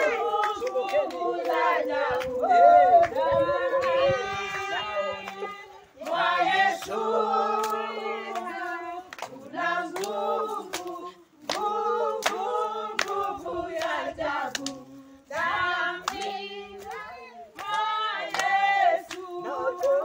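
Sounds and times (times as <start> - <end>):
hand claps: 0.0 - 4.2, 5.2 - 20.0
group singing worship song: 0.0 - 20.0.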